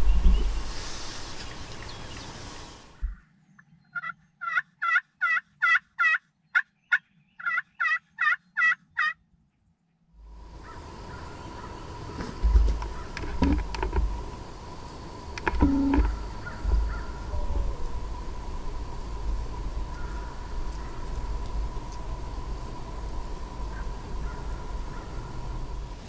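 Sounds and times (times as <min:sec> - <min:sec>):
low outdoor rumble: 0:00.0 - 0:03.4, 0:10.2 - 0:26.0
turkey yelps on a slate call: 0:04.0 - 0:09.2, 0:16.0 - 0:17.8.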